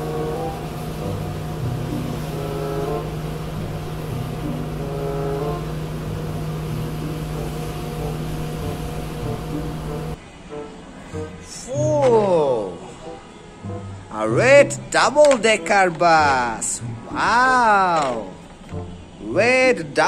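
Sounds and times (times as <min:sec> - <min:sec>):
road brush scrubbing: 0:00.0 - 0:10.2
truck engine humming: 0:00.0 - 0:10.2.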